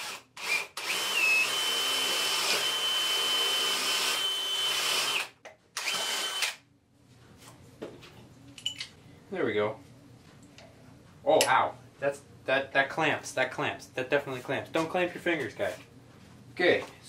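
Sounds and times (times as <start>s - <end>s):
power drill boring into wood: 0.0s - 6.6s.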